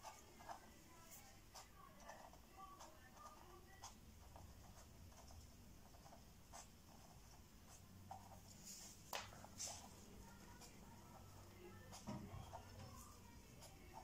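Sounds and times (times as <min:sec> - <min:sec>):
marker pen tapping on paper: 0:09.1 - 0:09.8, 0:11.9 - 0:14.0.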